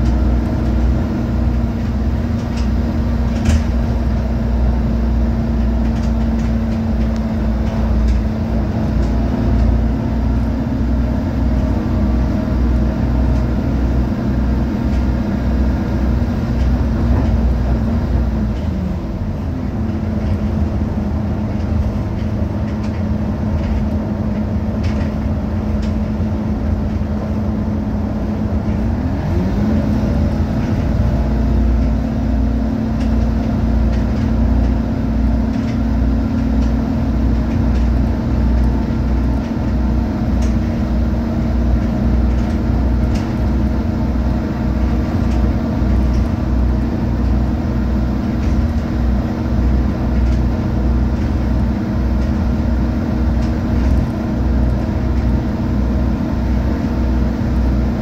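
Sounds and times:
bus drivetrain drone: 0.0s - 58.0s
road rumble: 0.0s - 58.0s.

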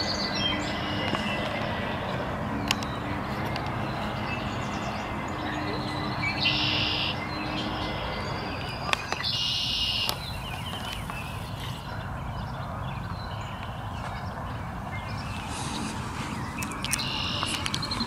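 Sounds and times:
loud buzzy bird calls: 0.0s - 18.0s
faint bird chirps: 16.5s - 18.0s.

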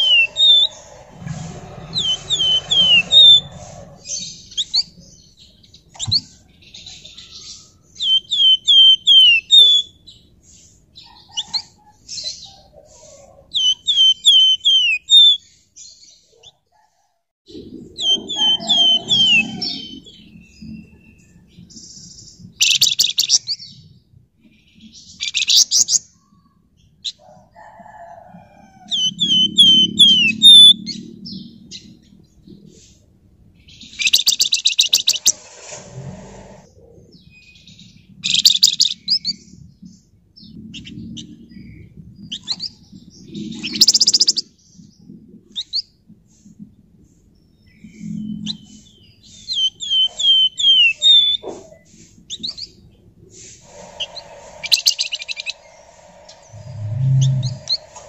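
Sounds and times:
songbird rapid high trills: 0.0s - 4.2s, 53.4s - 58.0s
songbird down-slurred whistles: 49.4s - 51.4s.

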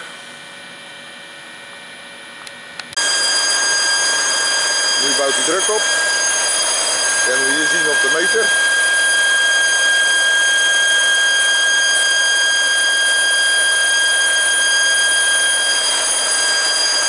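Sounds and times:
compressor high whine and hiss: 3.0s - 10.6s.

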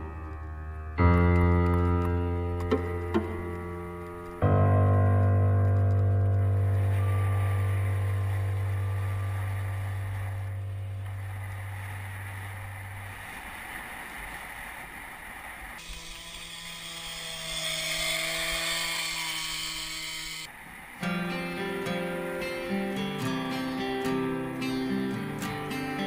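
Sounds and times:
bicycle tyres rolling on road: 0.0s - 15.9s
bicycle rolling over loose gravel: 0.3s - 13.4s
low held music note: 6.0s - 13.0s.

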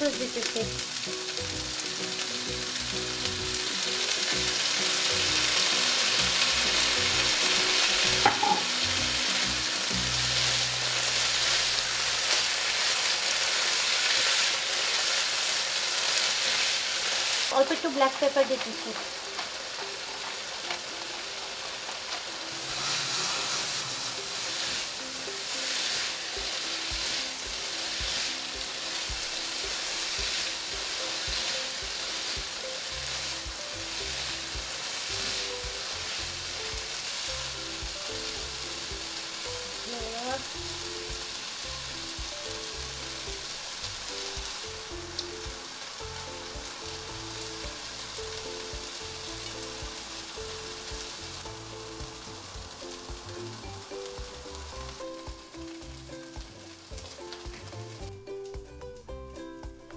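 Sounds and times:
vegetables sizzling in oil: 0.0s - 59.9s
spatula stirring in pan: 21.6s - 37.3s
background music with bass: 31.8s - 59.9s.

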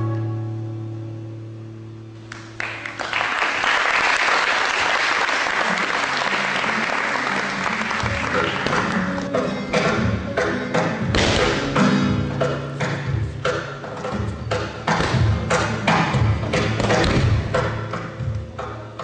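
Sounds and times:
live music low notes: 0.0s - 19.0s
audience applauding: 2.3s - 9.3s.

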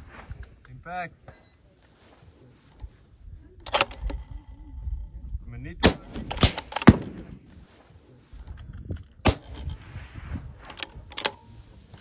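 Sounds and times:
rifle bolt clacking: 3.6s - 4.2s, 6.3s - 7.2s, 10.7s - 11.5s
rifle shots cracking: 5.8s - 7.4s, 9.2s - 9.8s.

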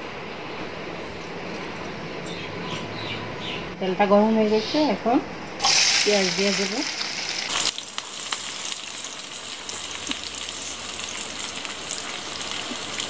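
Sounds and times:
onions sizzling in oil: 5.6s - 13.0s.

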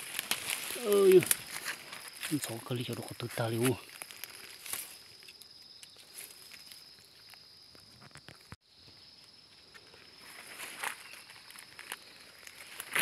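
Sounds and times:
footsteps in dry leaves: 0.0s - 5.3s, 10.2s - 13.0s.

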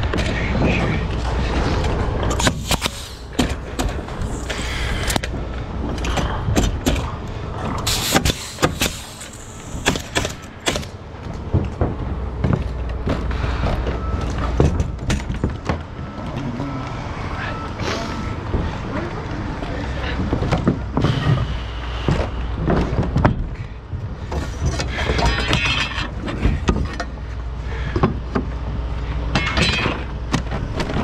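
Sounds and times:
steady low rumble: 0.0s - 29.4s
pneumatic nailer firing: 2.3s - 5.2s, 7.8s - 11.0s.

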